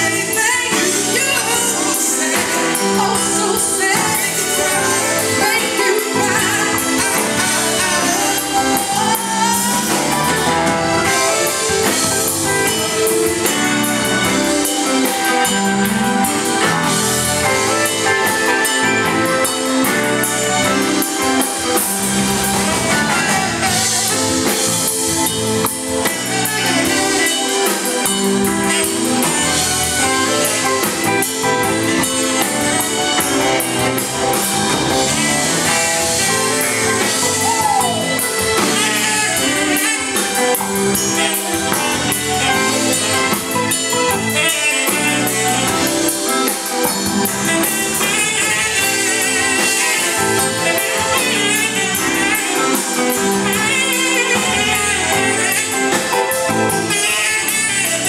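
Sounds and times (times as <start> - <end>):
person singing: 0.0 - 29.4
drum kit with cymbals: 0.0 - 58.0
electric guitar: 0.0 - 58.0
keyboard: 0.0 - 58.0
saxophone: 0.0 - 58.0.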